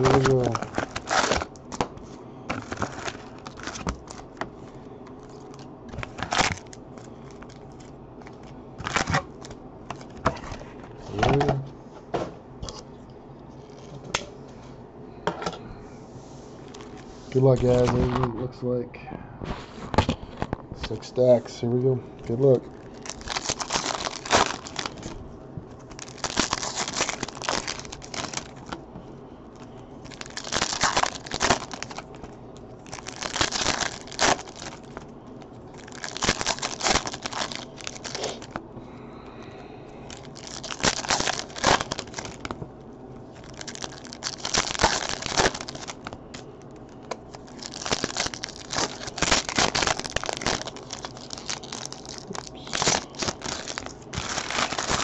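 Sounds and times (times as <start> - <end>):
foil wrappers tearing and crinkling: 0.0 - 10.6, 22.2 - 25.2, 25.8 - 28.8, 29.5 - 35.1, 35.7 - 38.6, 40.0 - 42.6, 43.3 - 55.0.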